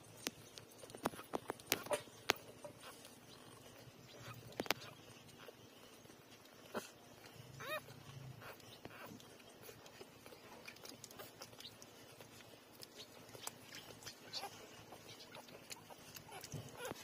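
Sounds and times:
faint small clicks: 6.3s - 17.0s
puppy squeak: 7.6s - 9.1s.

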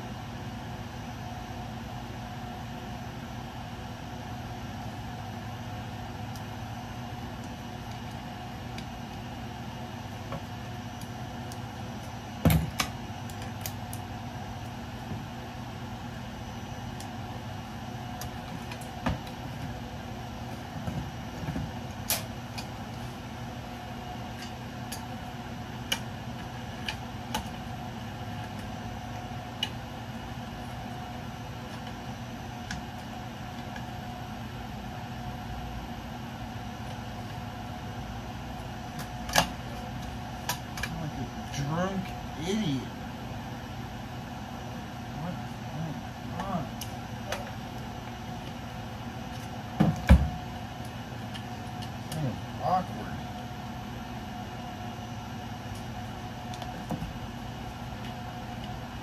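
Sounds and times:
steady mechanical hum: 0.0s - 59.0s
electrical parts clicking and knocking: 7.3s - 15.4s, 16.8s - 23.0s, 24.2s - 34.1s.

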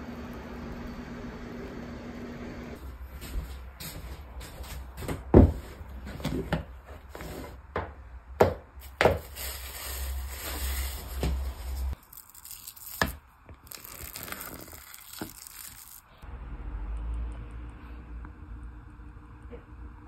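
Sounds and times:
cling film crinkling: 9.2s - 16.1s.

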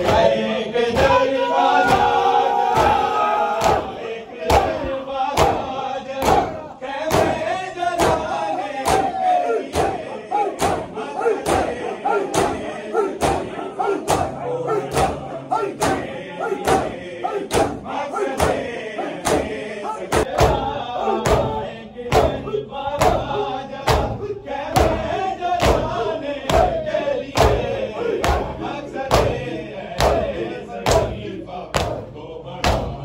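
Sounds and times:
crowd chanting: 0.0s - 33.0s
hands slapping chests: 4.5s - 6.5s, 8.0s - 17.8s, 18.4s - 20.6s, 31.8s - 32.0s.

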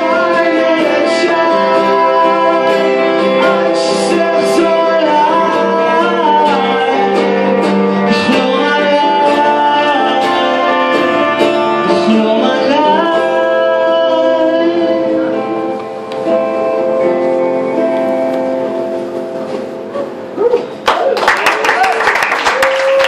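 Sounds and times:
man singing: 0.0s - 16.0s
acoustic guitar: 0.0s - 21.2s.

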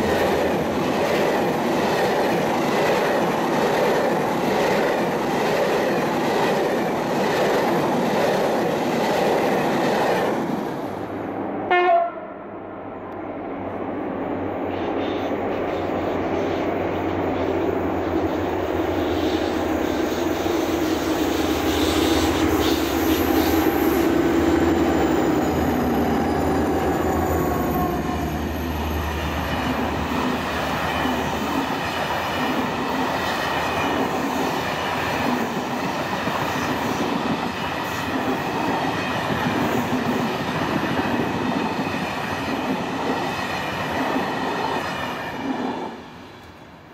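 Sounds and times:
train wheels clickety-clack: 0.0s - 10.5s, 17.4s - 46.6s
diesel locomotive engine hum: 0.0s - 46.9s
train coaches rumbling: 0.0s - 46.9s
train horn: 11.7s - 12.5s.

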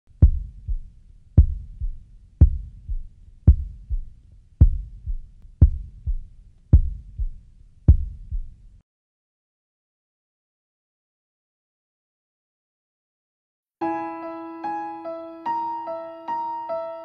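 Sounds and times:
heartbeat thumps: 0.2s - 8.6s.

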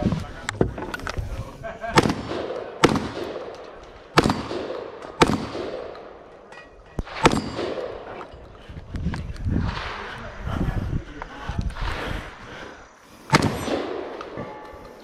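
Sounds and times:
gunshot echo: 1.9s - 6.2s, 7.0s - 8.2s, 13.3s - 14.7s
shotgun shots: 1.9s - 6.2s, 7.0s - 8.2s, 13.3s - 14.4s.

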